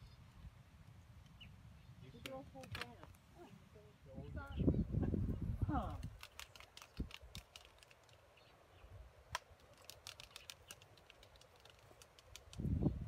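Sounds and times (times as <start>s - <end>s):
albatross bills clacking: 5.9s - 8.3s, 9.3s - 12.7s.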